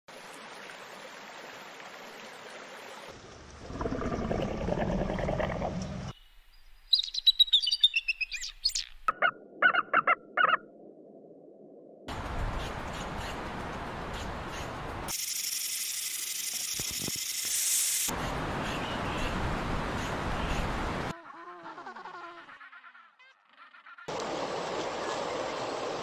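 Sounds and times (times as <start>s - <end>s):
bird of prey calls: 6.9s - 10.6s.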